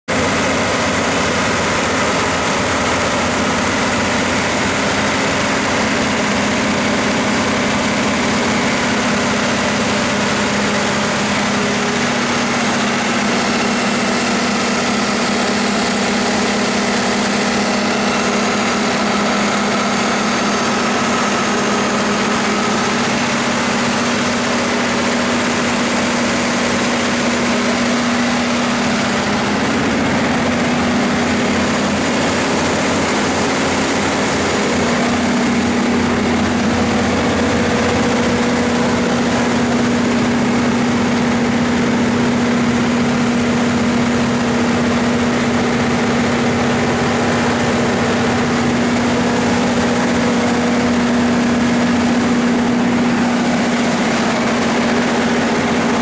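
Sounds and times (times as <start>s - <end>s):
diesel generator engine running: 0.1s - 56.0s.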